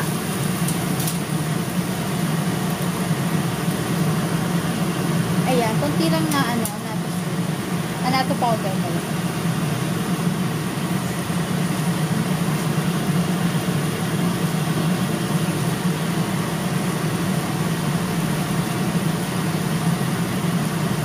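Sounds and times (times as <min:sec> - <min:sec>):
chicken sizzling in a pan: 0:00.0 - 0:08.0.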